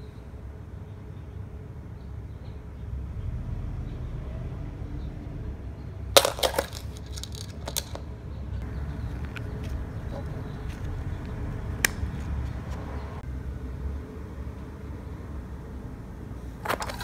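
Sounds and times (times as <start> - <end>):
plastic spring toy clattering: 6.2 - 8.1, 16.6 - 17.0.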